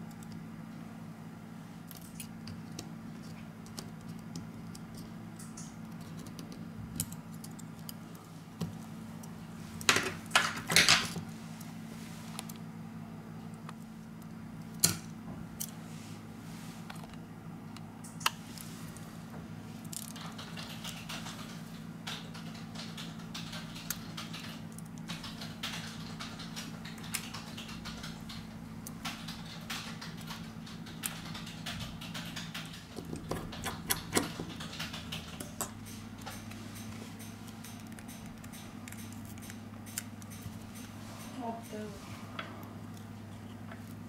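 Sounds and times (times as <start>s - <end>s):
steady low hum: 0.0s - 44.0s
tweezers clicking on phone parts: 34.9s - 41.0s.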